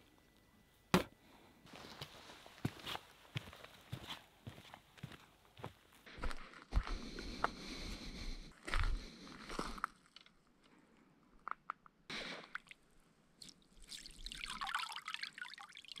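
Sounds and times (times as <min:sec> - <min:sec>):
footsteps on gravel: 0:01.7 - 0:10.0
water dripping: 0:13.4 - 0:16.0.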